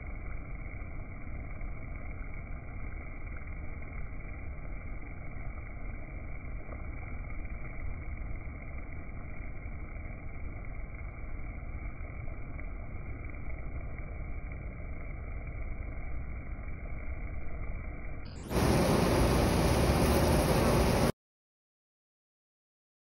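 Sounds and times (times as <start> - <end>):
slowed bee buzzing rumble: 18.4 - 21.1.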